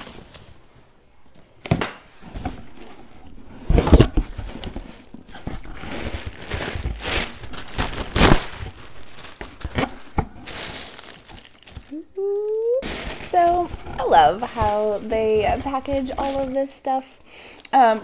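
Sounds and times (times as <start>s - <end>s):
cardboard box flaps folding: 1.8s - 11.8s
paper wrapping rustling: 2.2s - 17.1s.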